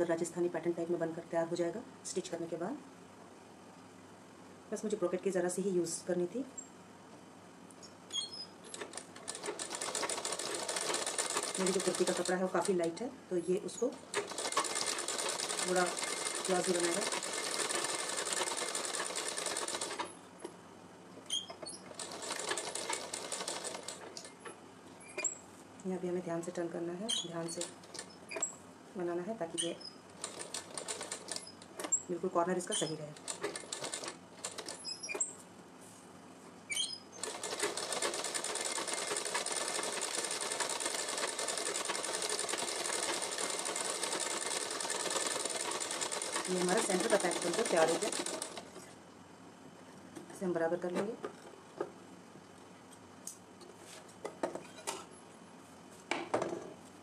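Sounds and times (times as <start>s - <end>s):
sewing machine stitching: 8.7s - 12.9s, 14.1s - 20.2s, 21.6s - 24.3s, 30.2s - 32.0s, 32.8s - 35.3s, 37.2s - 48.8s.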